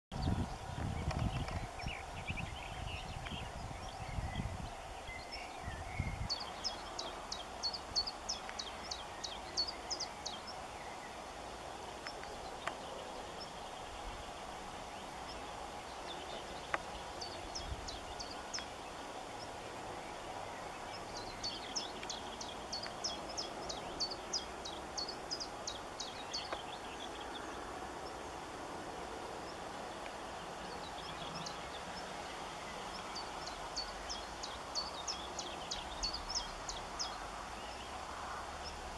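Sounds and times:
low background noise: 0.1 - 38.9
songbird singing: 0.1 - 38.9.

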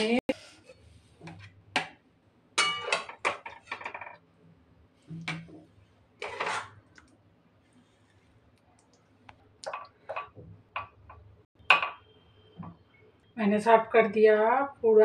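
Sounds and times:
metal spatula scraping on steel: 6.2 - 6.8.

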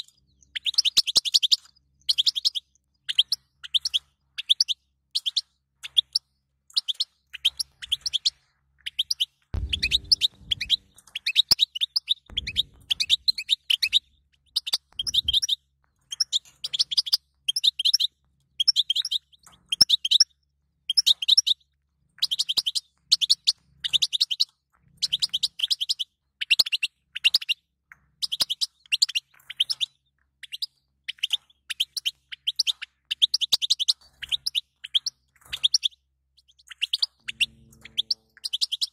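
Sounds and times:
goldfinch twittering: 8.9 - 20.2, 30.4 - 38.9.

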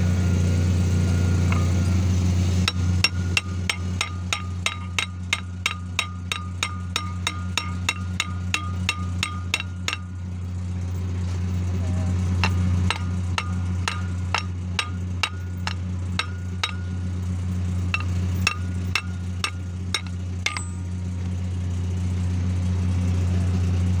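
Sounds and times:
hydraulic pump hum: 0.0 - 24.0
hammer striking metal: 2.6 - 10.2, 12.4 - 17.1, 17.9 - 20.9.

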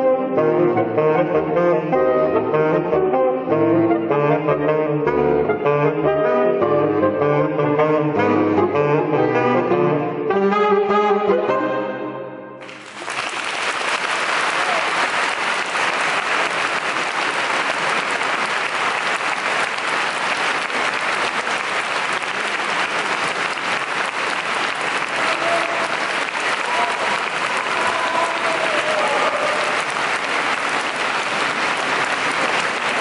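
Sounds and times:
saxophone quartet playing: 0.0 - 12.2
audience applauding: 12.6 - 33.0.

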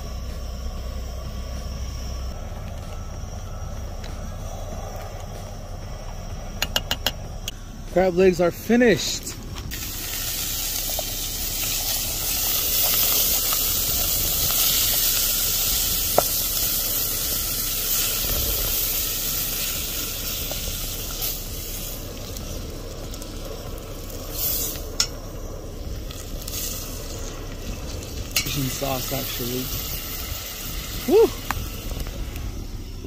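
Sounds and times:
butter and garlic sizzling: 9.0 - 33.0.

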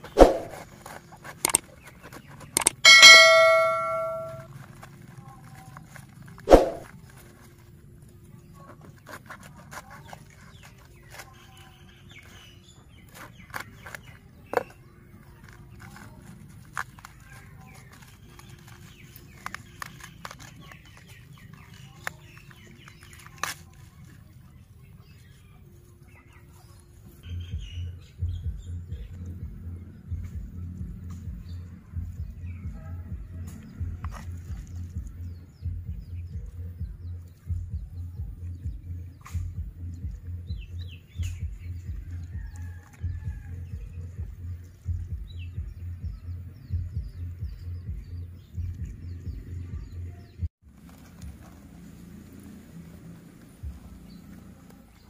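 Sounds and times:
quick clicks: 1.4 - 1.8, 2.5 - 3.2
notification bell ding: 2.6 - 4.5
cabbage leaves cracking: 4.4 - 25.4, 33.4 - 35.5.

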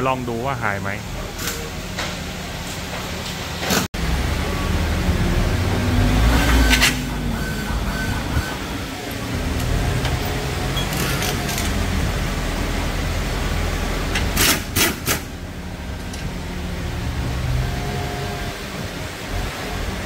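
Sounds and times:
pneumatic impact wrench bursts: 14.2 - 15.3.

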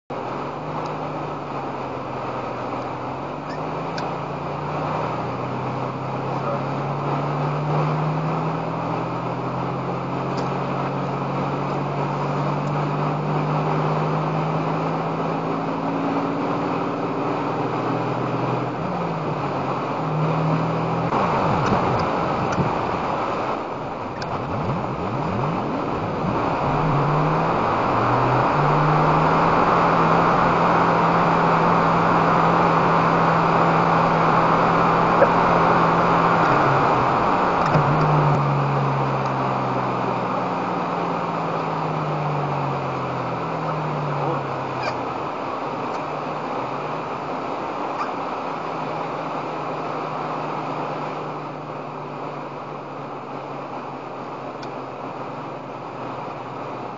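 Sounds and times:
road noise inside car: 0.0 - 56.9
vehicle engine accelerating: 0.1 - 56.9.

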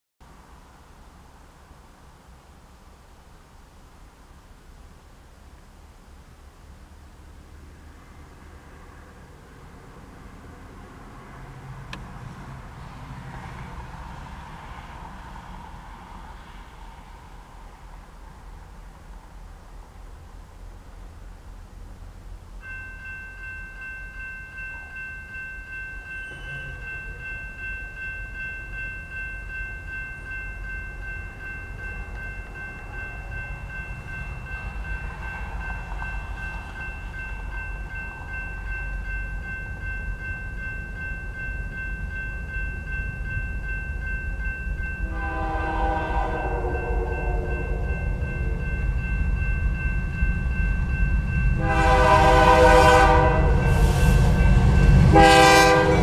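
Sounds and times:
freight train rumbling: 0.2 - 56.0
railroad crossing bell ringing: 22.6 - 56.0
locomotive horn: 45.0 - 48.6, 51.6 - 56.0.

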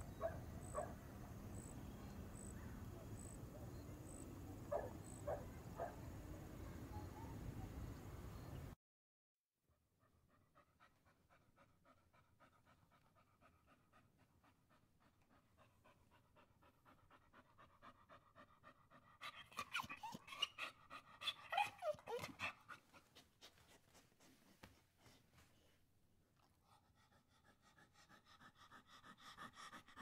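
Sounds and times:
dog panting: 10.0 - 25.8, 26.4 - 30.0
dog whining: 19.2 - 22.8.

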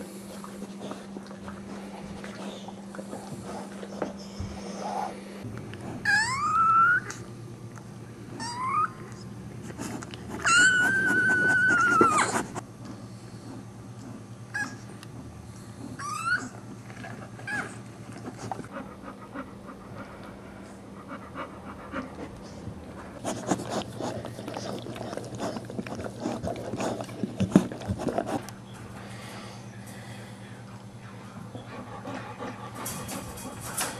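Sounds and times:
puppy crying: 6.0 - 7.3, 8.4 - 9.1, 10.4 - 12.6, 14.5 - 14.9, 16.0 - 16.6, 17.4 - 17.8
dog licking puppy: 23.2 - 28.6.

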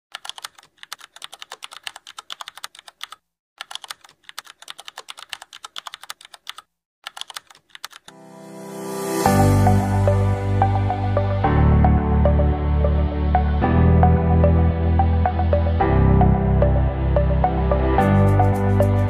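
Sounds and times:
keyboard typing clicks: 0.1 - 8.2
music: 8.1 - 19.0.

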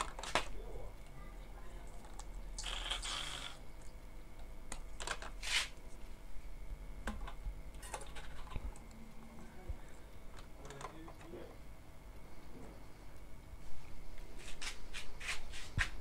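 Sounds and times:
plastic rustling scrape: 5.3 - 5.8.

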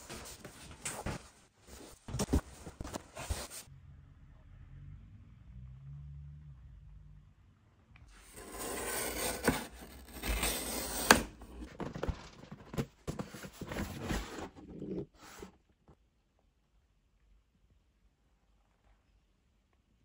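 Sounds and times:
packaging scraping and rubbing: 8.2 - 15.5.

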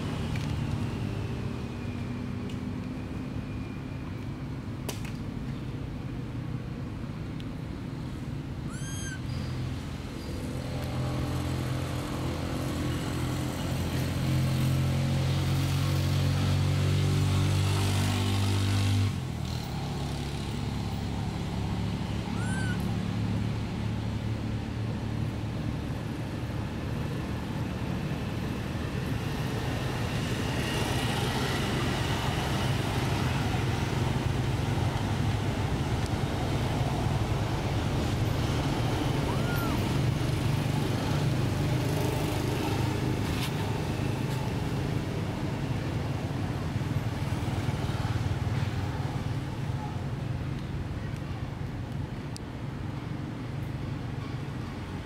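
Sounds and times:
engine humming: 19.3 - 47.5.

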